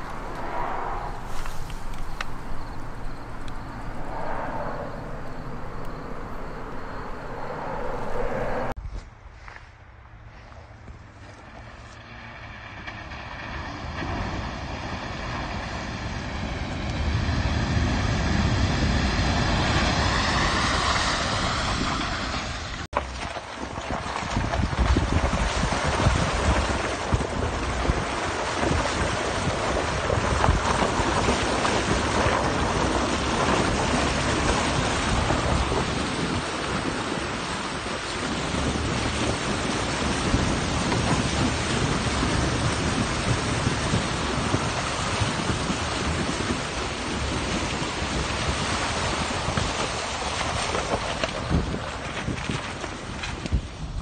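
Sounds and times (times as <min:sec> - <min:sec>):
wind buffeting microphone: 0:00.0 - 0:09.0, 0:13.0 - 0:54.0.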